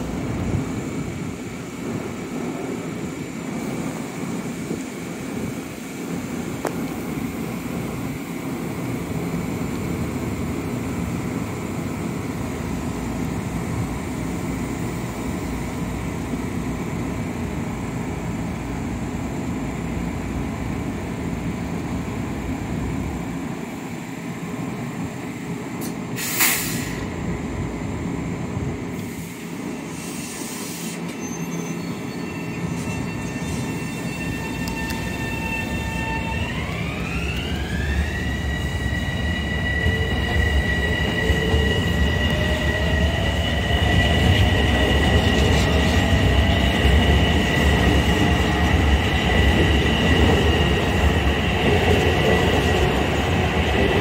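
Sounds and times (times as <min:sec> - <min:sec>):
train wheels rumbling: 0:24.6 - 0:54.0
train whine rising in pitch: 0:26.7 - 0:54.0.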